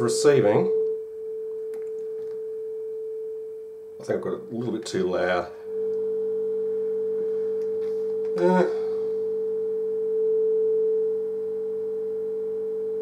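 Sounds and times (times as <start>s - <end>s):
sine-wave test tone from radio: 0.0s - 13.0s.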